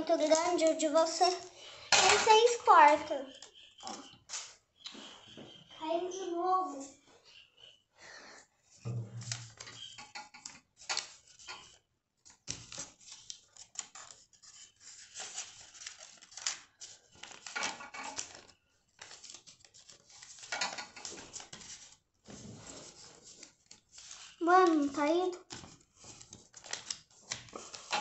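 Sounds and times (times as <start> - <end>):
paper rustling and crinkling: 0.0 - 4.5, 9.2 - 28.0.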